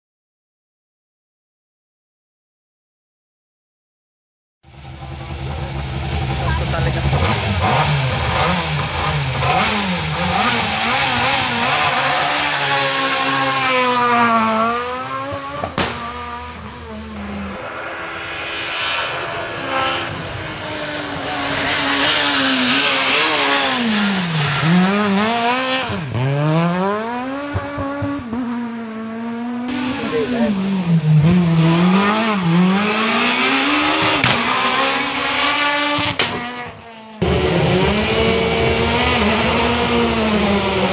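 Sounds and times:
rally car engines revving hard: 4.8 - 17.6, 19.6 - 40.9
sharp crack: 15.5 - 16.4, 34.1 - 34.8, 36.1 - 36.5.

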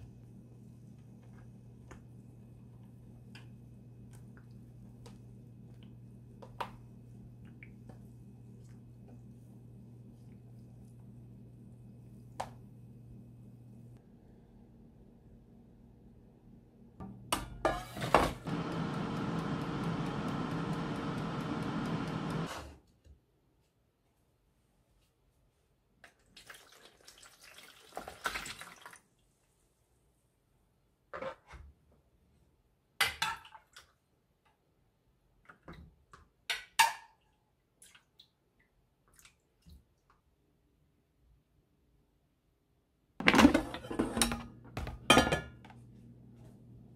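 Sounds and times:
air fryer fan humming: 17.0 - 22.8
dial timer ticking: 18.5 - 22.5.

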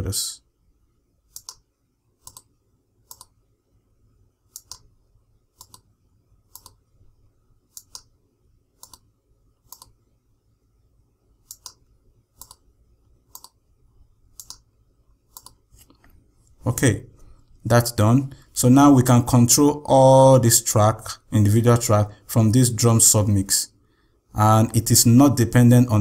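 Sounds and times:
faint low hum: 0.0 - 26.0
mouse buttons clicking: 1.3 - 3.4, 4.5 - 4.9, 5.6 - 5.9, 6.5 - 6.8, 7.7 - 8.2, 8.8 - 10.0, 11.4 - 11.8, 12.4 - 12.7, 13.3 - 13.6, 14.3 - 14.7, 15.3 - 16.1.

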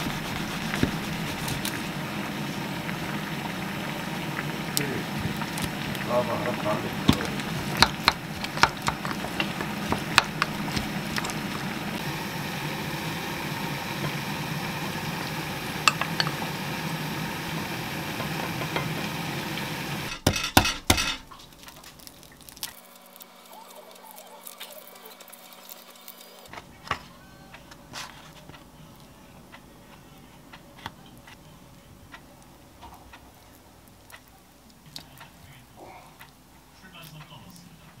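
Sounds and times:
spoon stirring food: 0.0 - 2.0, 5.1 - 12.0, 15.8 - 16.5, 24.2 - 35.6.

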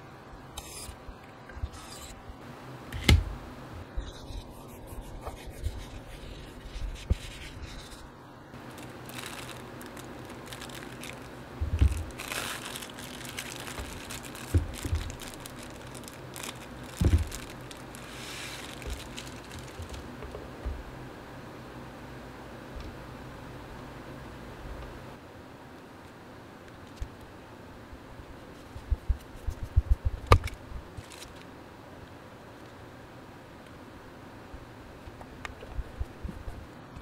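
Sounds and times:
plastic wrapping crinkling: 6.6 - 20.4, 31.0 - 31.4
parts knocking on a desk mat: 17.0 - 17.3.

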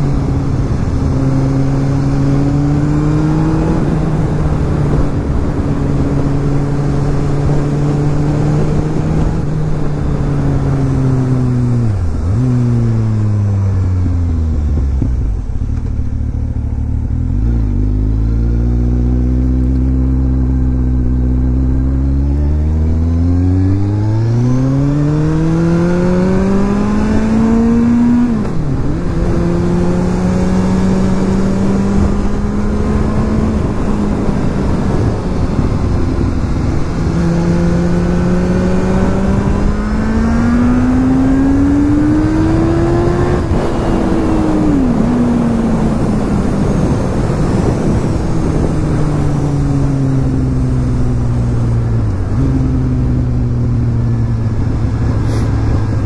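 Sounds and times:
motorcycle engine accelerating: 0.0 - 56.0
wind noise: 0.0 - 56.0.

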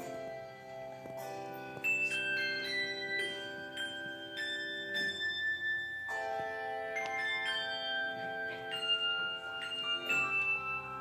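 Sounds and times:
handbell choir ringing: 0.0 - 11.0.

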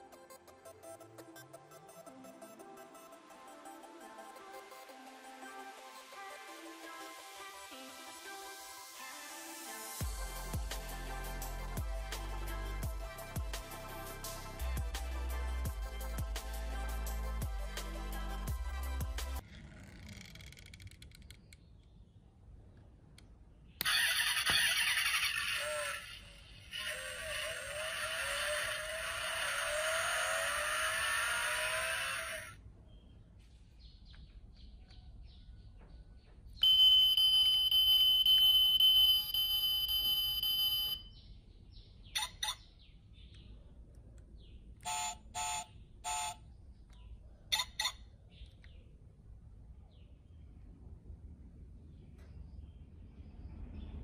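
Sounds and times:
toy car engine recording: 23.8 - 32.6, 44.8 - 46.4
high electronic tone: 36.6 - 41.1
short beeps: 36.6 - 41.2.

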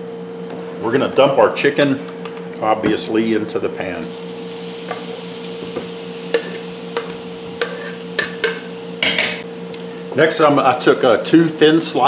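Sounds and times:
chicken sizzling in oil: 4.0 - 12.0
knife scraping on cutting board: 7.6 - 8.4.

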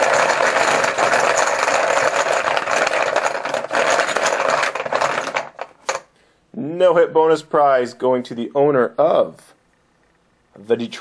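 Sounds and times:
chips rattling in container: 0.0 - 6.1.

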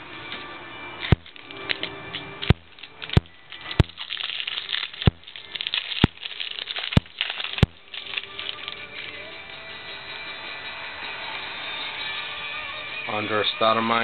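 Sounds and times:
crinkly card packaging rustling: 1.0 - 9.4.

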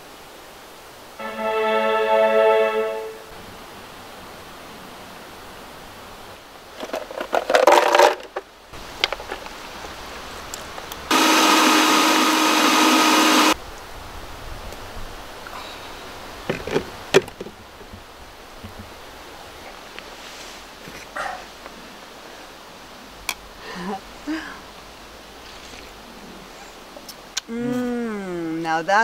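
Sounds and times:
blender crushing ice: 11.1 - 13.6.

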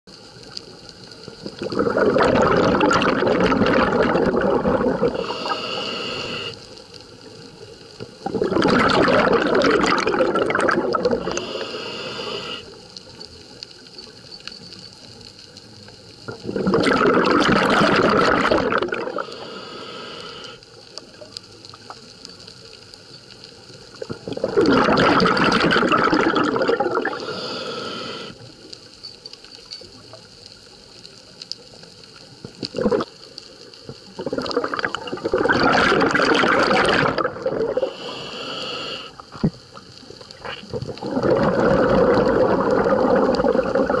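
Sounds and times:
diver breathing bubbles rushing: 1.5 - 6.6, 8.2 - 12.7, 16.3 - 20.6, 24.0 - 28.4, 32.6 - 33.1, 34.1 - 39.6, 40.3 - 44.0
regulator hiss: 5.0 - 7.0, 11.2 - 13.2, 19.1 - 20.9, 27.0 - 28.6, 37.7 - 39.7.

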